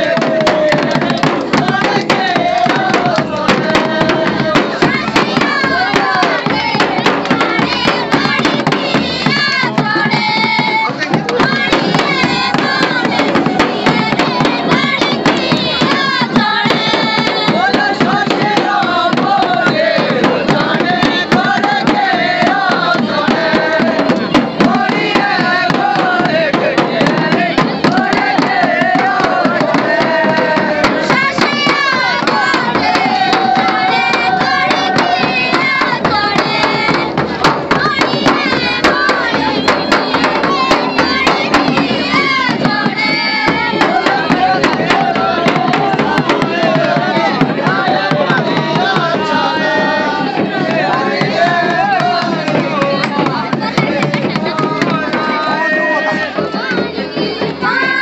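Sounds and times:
folk instruments: 0:00.0 - 0:58.0
folk song singing: 0:00.0 - 0:58.0
steady percussion beat: 0:00.0 - 0:58.0.

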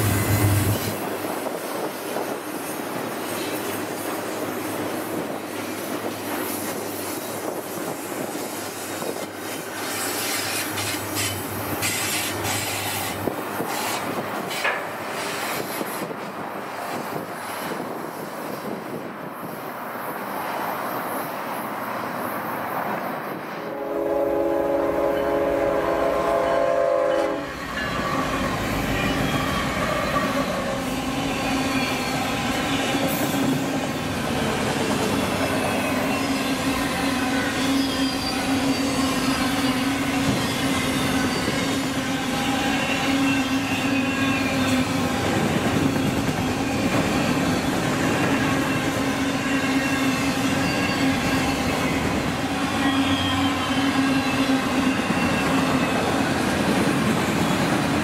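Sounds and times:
freight train wheels and rail clicks: 0:00.0 - 0:58.0
heavy rumble of train: 0:00.0 - 0:58.0
locomotive air horn blast: 0:23.7 - 0:27.6.

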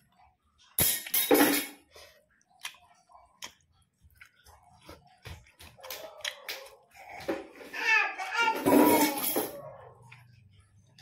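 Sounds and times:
chewing crispy fried chicken: 0:02.0 - 0:07.0.

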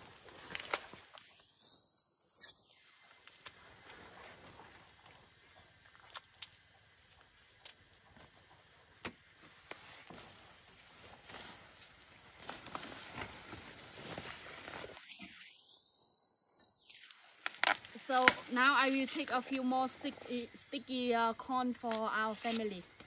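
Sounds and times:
corn husks rustling: 0:09.5 - 0:20.6, 0:21.8 - 0:23.0
short crackles and snaps: 0:16.9 - 0:18.6.

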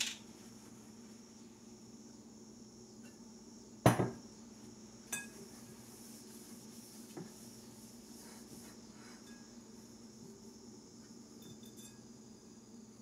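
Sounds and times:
glass bottle knocking on countertop: 0:03.8 - 0:04.2
glass bowl knocks: 0:03.9 - 0:04.2.

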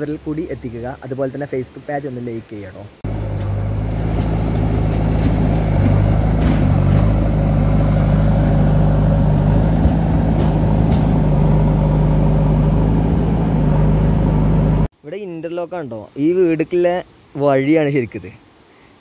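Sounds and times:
diesel engine droning: 0:03.0 - 0:14.9.

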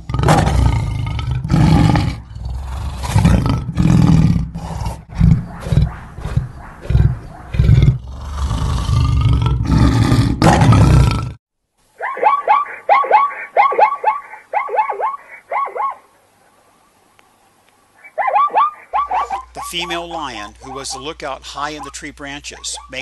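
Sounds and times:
lion growling and roaring: 0:00.0 - 0:11.4.

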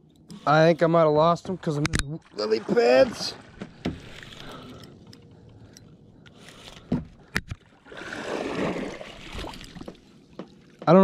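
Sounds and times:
fish thrashing in water: 0:07.8 - 0:10.1.

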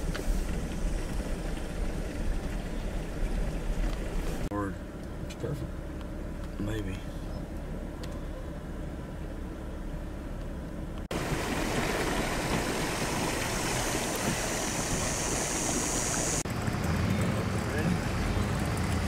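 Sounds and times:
engine idling: 0:00.0 - 0:19.0
rushing noise with high hiss: 0:11.1 - 0:16.4.

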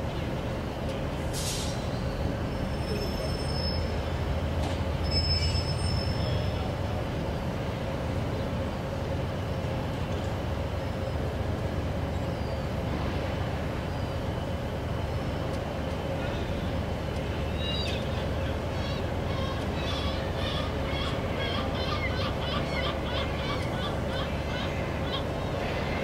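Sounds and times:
train rumbling on rails: 0:00.0 - 0:26.0
high wheel squeals: 0:01.4 - 0:06.8.

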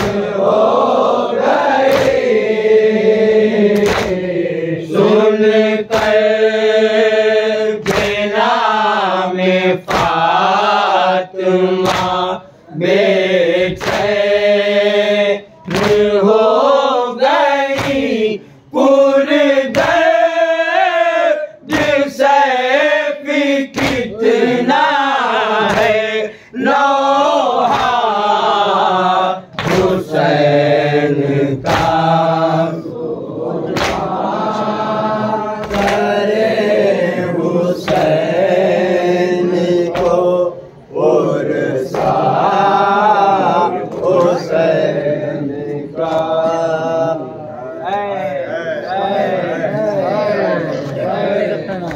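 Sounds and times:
chest-beating slaps: 0:00.0 - 0:00.6, 0:01.6 - 0:02.6, 0:03.6 - 0:04.4, 0:05.8 - 0:06.4, 0:07.8 - 0:08.4, 0:09.8 - 0:10.6, 0:11.7 - 0:12.4, 0:13.6 - 0:14.4, 0:15.6 - 0:16.2, 0:17.6 - 0:18.2, 0:19.7 - 0:20.1, 0:21.6 - 0:22.1, 0:23.7 - 0:24.3, 0:25.6 - 0:26.3, 0:27.6 - 0:28.2, 0:29.5 - 0:30.3, 0:31.2 - 0:32.4, 0:33.6 - 0:34.8, 0:35.6 - 0:36.3, 0:37.8 - 0:38.5, 0:39.8 - 0:40.4, 0:41.9 - 0:42.4
men chanting in unison: 0:00.0 - 0:51.9
man leading chant: 0:33.6 - 0:51.9.

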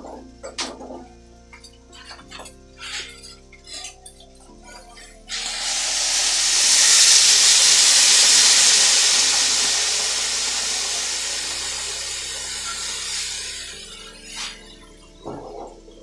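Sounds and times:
water sizzling in hot pan: 0:05.3 - 0:14.9.

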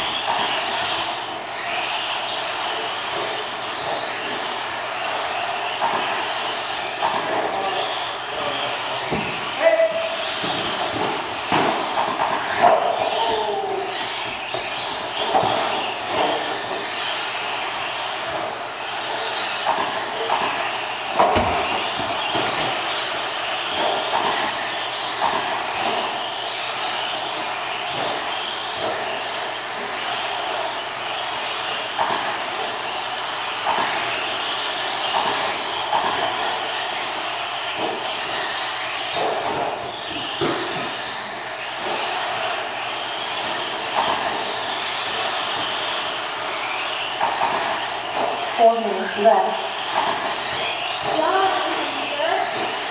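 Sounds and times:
rc truck motors whining: 0:00.0 - 0:52.9.

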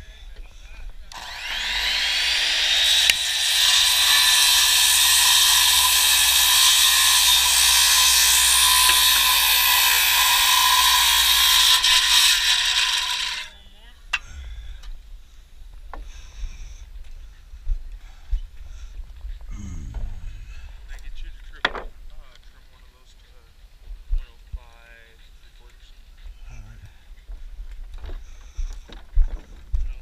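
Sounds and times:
power tool running: 0:01.1 - 0:13.5.

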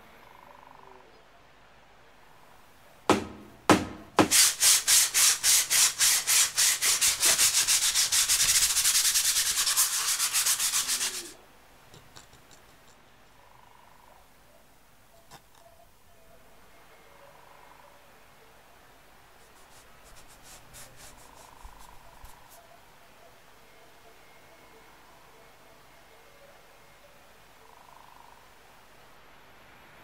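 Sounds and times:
sandpaper rubbing on wood: 0:04.2 - 0:11.4, 0:19.4 - 0:22.6.

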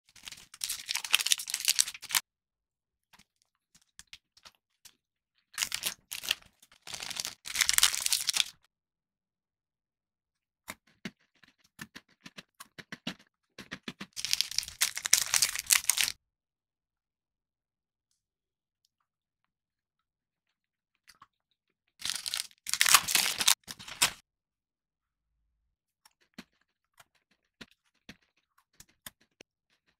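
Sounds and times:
plastic wrappers tearing and crinkling: 0:00.1 - 0:02.2, 0:05.6 - 0:08.6, 0:14.2 - 0:16.2, 0:22.0 - 0:24.2.

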